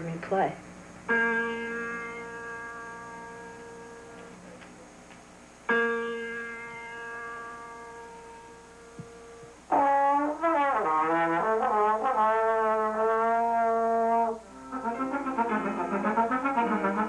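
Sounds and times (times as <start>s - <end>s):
trombone playing: 9.3s - 17.0s.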